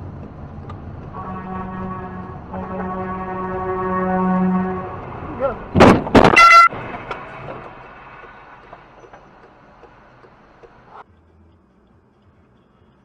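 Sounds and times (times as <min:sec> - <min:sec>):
car horn blaring: 0:01.1 - 0:05.6, 0:06.2 - 0:06.8
loud horn blasts: 0:01.1 - 0:05.6, 0:06.2 - 0:06.8
higher-pitched horn toot: 0:01.2 - 0:05.1, 0:06.3 - 0:06.7.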